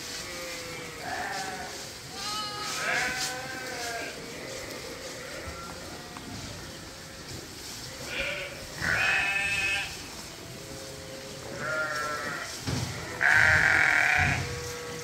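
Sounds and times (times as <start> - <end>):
sheep bleating: 0.2 - 6.2, 8.1 - 10.0, 11.4 - 15.0.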